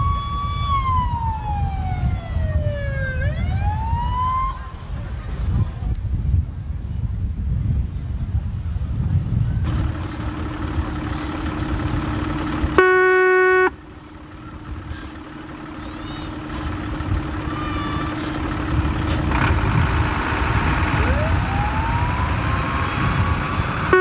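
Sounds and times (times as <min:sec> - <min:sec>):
diesel engine rumble: 0:00.0 - 0:24.0
fire engine horn blast: 0:09.7 - 0:24.0
siren winding up: 0:20.4 - 0:24.0.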